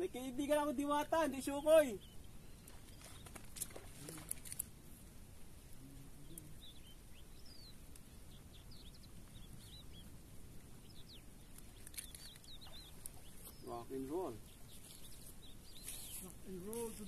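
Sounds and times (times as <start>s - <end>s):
low outdoor hiss: 0.0s - 17.0s
small birds chirping: 0.0s - 17.0s
sharp light clicks: 11.5s - 13.1s.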